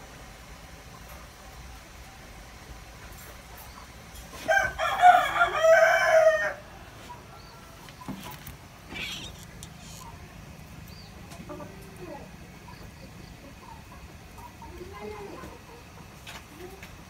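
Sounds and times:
rooster crowing: 0:04.4 - 0:06.9.

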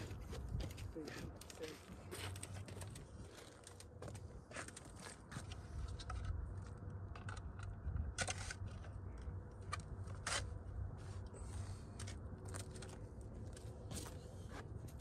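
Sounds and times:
gear clicking and rustling: 0:00.0 - 0:10.4.

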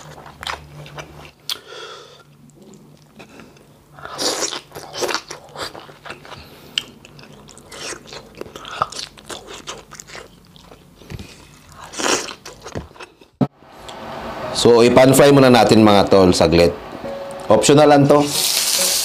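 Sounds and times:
person chewing crunchy vegetables: 0:00.0 - 0:13.4.

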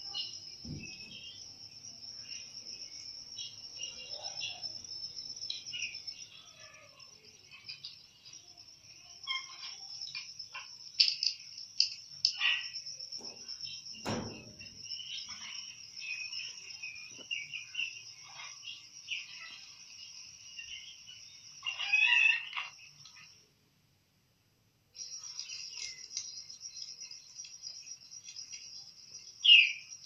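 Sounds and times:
bird chirps: 0:00.0 - 0:23.4, 0:25.0 - 0:30.0
crickets trilling: 0:00.0 - 0:23.5, 0:24.9 - 0:30.0
beak tapping steel plate: 0:14.0 - 0:14.9.

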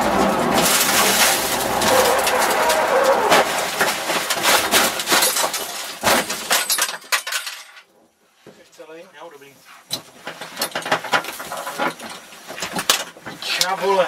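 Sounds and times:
car engine and road noise: 0:00.0 - 0:06.4
sharp impacts: 0:00.0 - 0:07.1
knocks and rattles: 0:00.0 - 0:07.8, 0:09.9 - 0:13.4.

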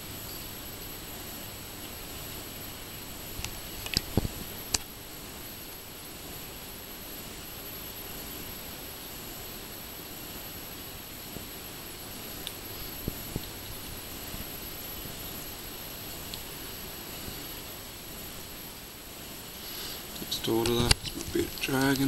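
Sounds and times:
faint high-pitched whine: 0:00.0 - 0:22.0
steady hiss: 0:00.0 - 0:22.0
sharp clicks: 0:20.2 - 0:22.0.

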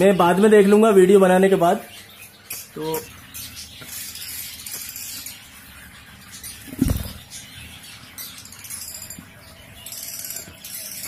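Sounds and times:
dull thump: 0:06.7 - 0:07.3.

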